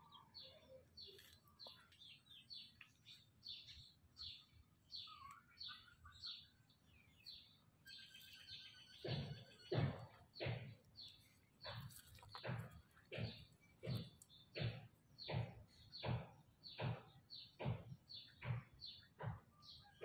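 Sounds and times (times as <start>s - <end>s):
small birds chirping: 0.0s - 20.0s
loud thumps: 9.0s - 10.8s.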